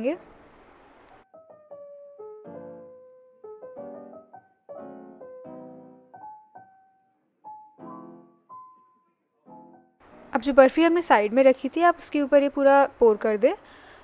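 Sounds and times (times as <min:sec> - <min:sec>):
gentle piano music: 0:01.2 - 0:10.6.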